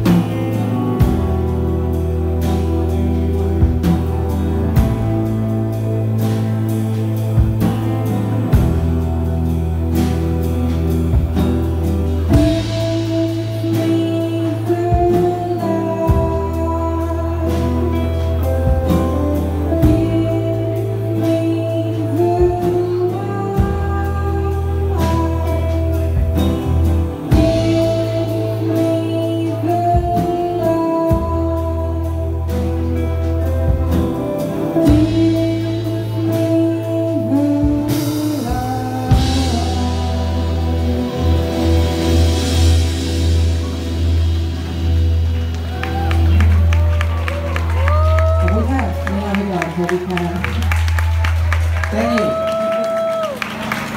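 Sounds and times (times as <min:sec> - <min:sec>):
live band playing: 0:00.0 - 0:53.9
lead singer singing: 0:12.3 - 0:33.1, 0:34.6 - 0:42.5.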